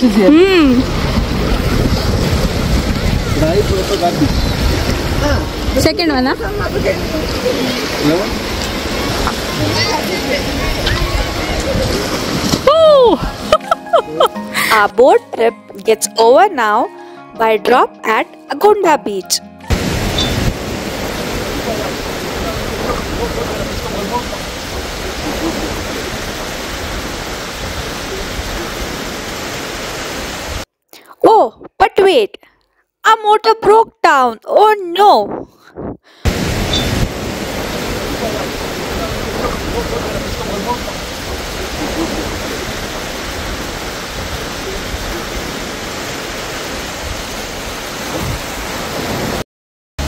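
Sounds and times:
wind buffeting microphone: 0:00.0 - 0:13.5, 0:19.7 - 0:30.6, 0:35.2 - 0:49.4
wind and water rushing: 0:00.0 - 0:18.2, 0:18.9 - 0:30.7, 0:34.1 - 0:49.4.

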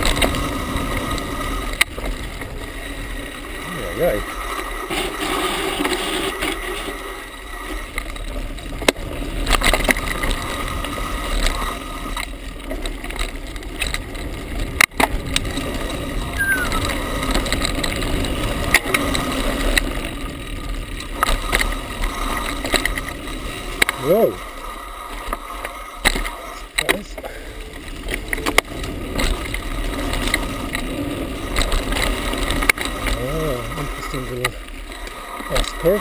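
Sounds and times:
bike tyres rolling over dirt: 0:00.0 - 0:36.0
bike rattling and knocking: 0:07.9 - 0:24.4.

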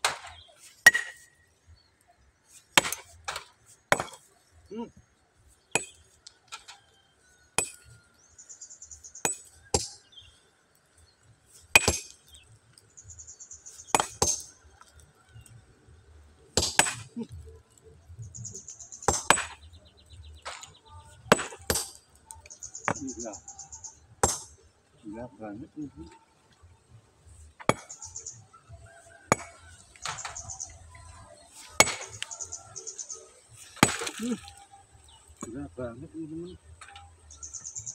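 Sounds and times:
hammer striking stone: 0:00.9 - 0:01.3, 0:02.8 - 0:04.2, 0:05.8 - 0:06.0, 0:07.6 - 0:07.8, 0:09.2 - 0:10.0, 0:11.8 - 0:12.2, 0:13.9 - 0:14.5, 0:16.6 - 0:17.1, 0:19.1 - 0:19.6, 0:24.2 - 0:24.6, 0:29.3 - 0:30.4.

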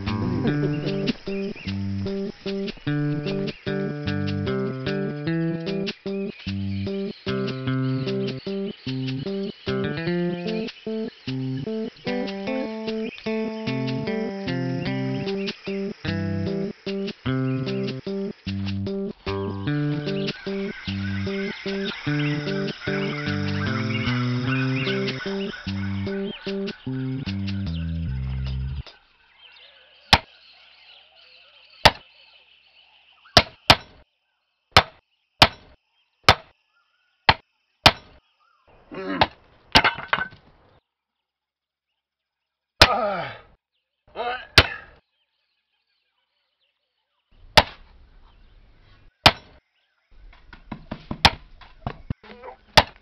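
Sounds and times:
cartoon wooden knocks: 0:33.4 - 0:34.0, 0:34.8 - 0:36.5, 0:37.3 - 0:38.2, 0:49.2 - 0:49.6, 0:50.5 - 0:53.0.

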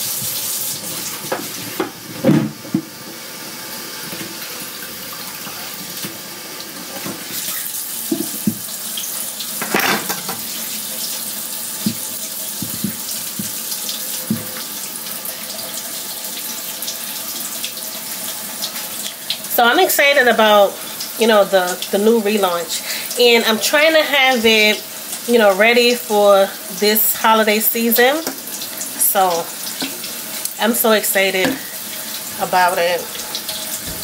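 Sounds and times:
faucet running into sink: 0:00.0 - 0:34.0
knocks and splashes in sink: 0:00.2 - 0:03.0, 0:08.1 - 0:08.7, 0:09.6 - 0:10.5, 0:11.8 - 0:14.7.

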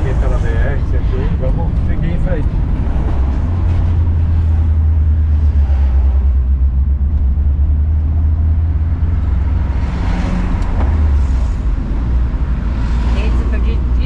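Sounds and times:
engine and road rumble: 0:00.0 - 0:14.0.

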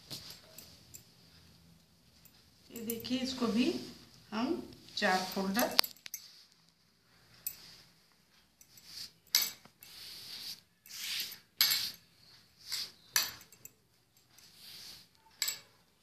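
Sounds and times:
cloth rustling swishes: 0:04.8 - 0:12.0.

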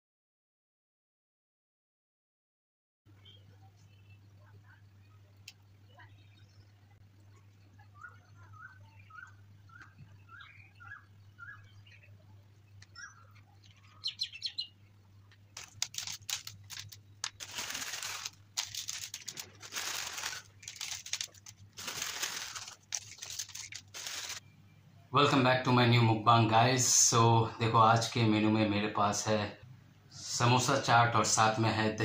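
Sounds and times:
crisp noodles sprinkled crackling: 0:15.5 - 0:24.4.

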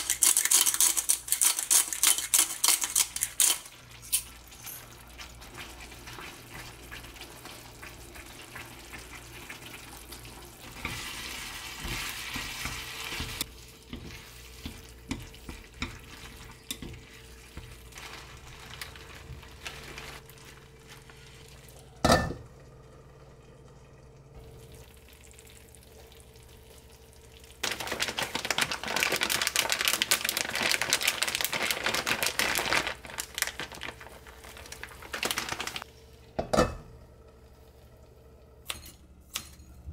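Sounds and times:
food sizzling in a pan: 0:03.8 - 0:22.2.

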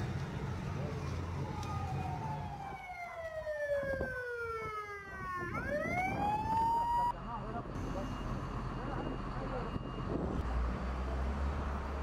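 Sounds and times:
emergency siren wailing: 0:00.6 - 0:07.2.

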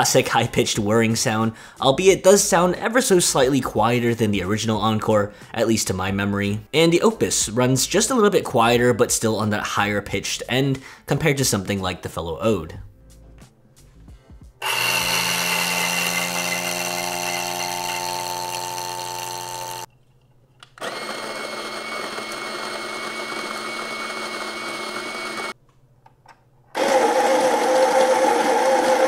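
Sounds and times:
coffee grinder whirring: 0:14.6 - 0:19.9, 0:20.8 - 0:25.6, 0:26.8 - 0:29.0.

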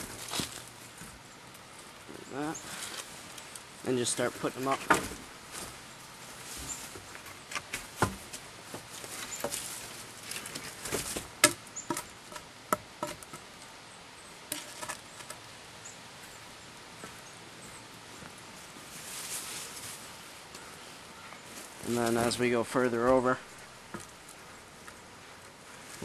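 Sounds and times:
rustling leaf litter: 0:00.0 - 0:11.3, 0:18.4 - 0:26.0
wooden poles knocking together: 0:04.6 - 0:05.2, 0:07.5 - 0:09.7, 0:10.3 - 0:13.4, 0:14.5 - 0:15.4.

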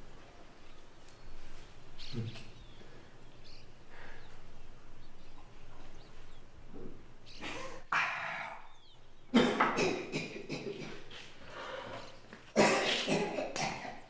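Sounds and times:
man coughing hard: 0:09.3 - 0:11.2, 0:12.6 - 0:14.0.

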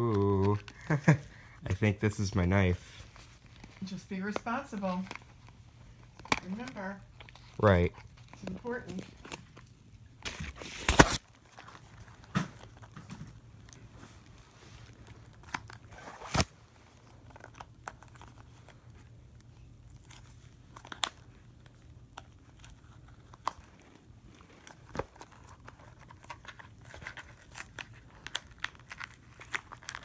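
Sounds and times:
scissors snipping packaging: 0:08.2 - 0:12.7, 0:24.7 - 0:30.0.

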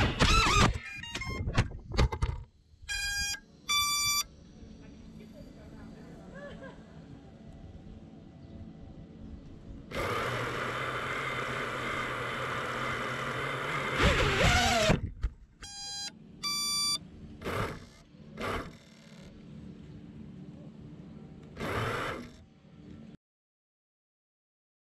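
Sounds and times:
electronic beeps: 0:02.9 - 0:04.3, 0:15.6 - 0:17.0
quadcopter motors whirring: 0:09.9 - 0:15.1, 0:16.5 - 0:19.3, 0:21.6 - 0:22.4.

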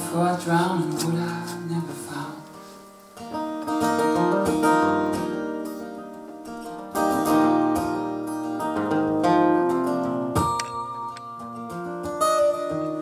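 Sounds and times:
person singing: 0:00.0 - 0:02.6
acoustic guitar strumming: 0:00.0 - 0:13.0.

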